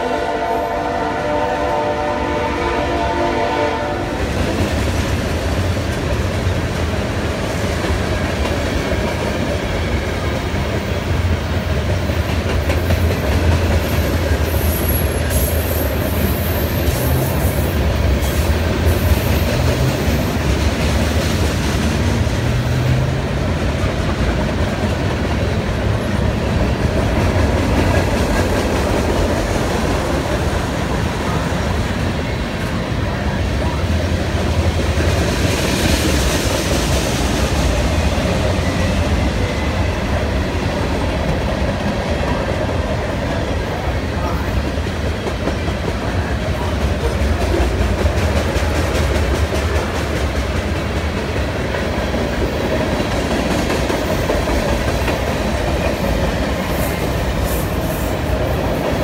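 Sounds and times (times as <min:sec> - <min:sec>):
train wheels rumbling and clattering: 0:00.0 - 0:59.0.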